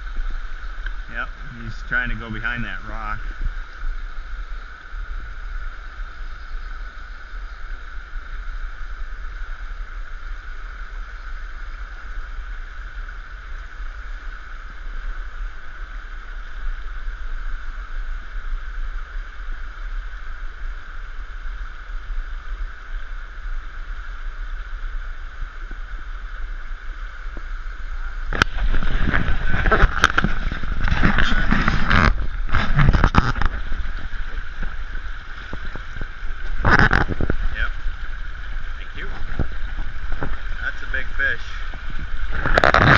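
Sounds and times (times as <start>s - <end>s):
low rumble: 17.0s - 42.9s
river rushing over rocks: 24.3s - 42.9s.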